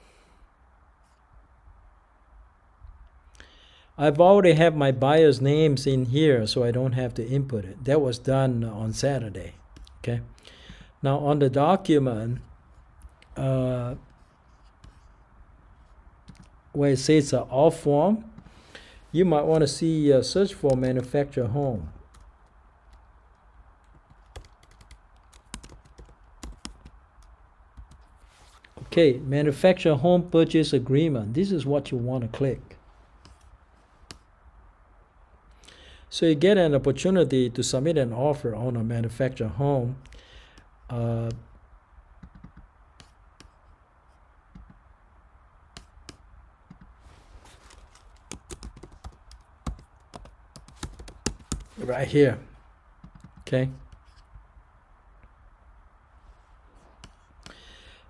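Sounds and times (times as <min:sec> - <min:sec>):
faint keyboard typing: 0:15.8 - 0:16.6, 0:20.5 - 0:28.7, 0:33.2 - 0:34.3, 0:42.2 - 0:44.8, 0:45.7 - 0:51.9, 0:53.0 - 0:54.4.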